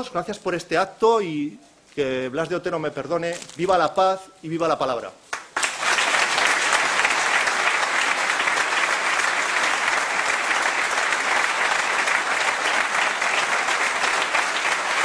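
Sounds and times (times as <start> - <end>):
audience applauding: 5.3 - 15.0.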